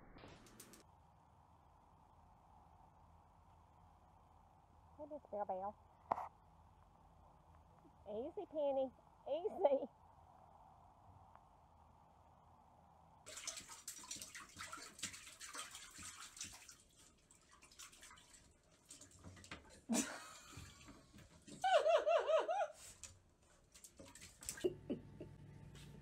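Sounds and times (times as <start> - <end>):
water sloshing in toilet bowl: 13.3 - 21.7, 22.8 - 24.8
person laughing: 19.9 - 20.5, 21.6 - 22.8, 24.5 - 25.4.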